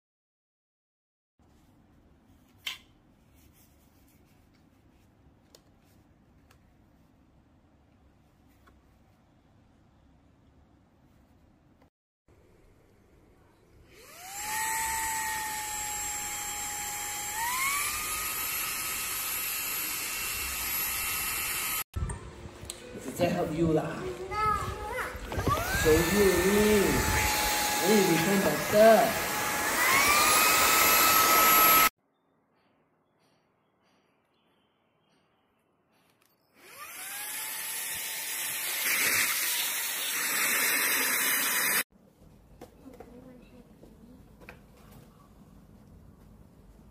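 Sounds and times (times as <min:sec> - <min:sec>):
handheld vacuum cleaner whine: 0:13.9 - 0:21.8, 0:25.2 - 0:31.9, 0:36.6 - 0:41.8.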